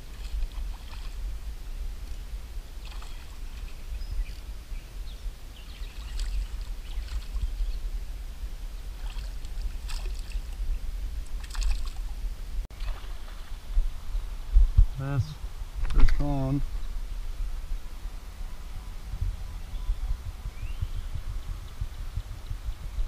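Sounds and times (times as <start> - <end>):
steady low rumble: 0.0 - 23.0
fish splashing at water surface: 0.1 - 1.2, 2.8 - 3.8, 9.0 - 10.6, 11.4 - 12.1.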